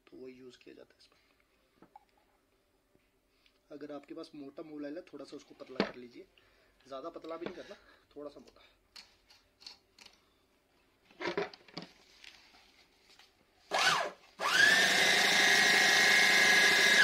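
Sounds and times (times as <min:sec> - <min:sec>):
bag closer motor whining: 0:13.7 - 0:17.0.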